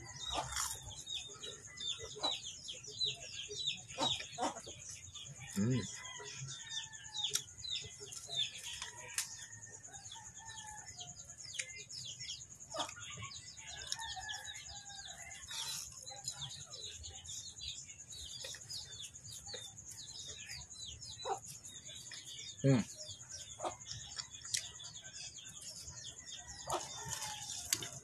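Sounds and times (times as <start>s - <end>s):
chickens clucking: 0.0s - 6.7s, 18.4s - 25.1s
small birds chirping: 0.0s - 28.0s.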